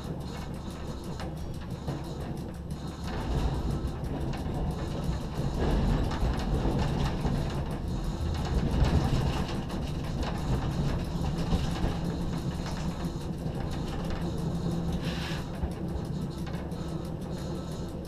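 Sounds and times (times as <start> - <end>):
low steady hum: 0.0 - 18.0
train rumbling over tracks: 0.0 - 18.0.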